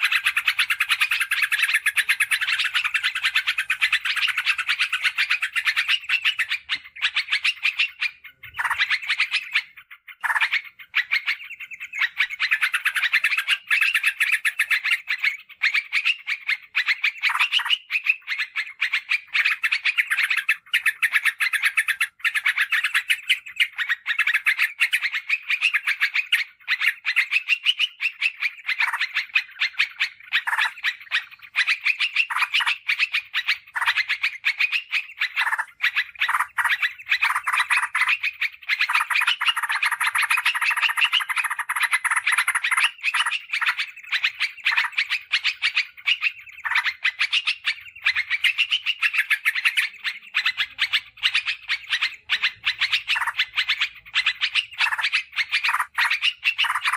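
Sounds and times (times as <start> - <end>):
bird chirping song: 0.0 - 56.9.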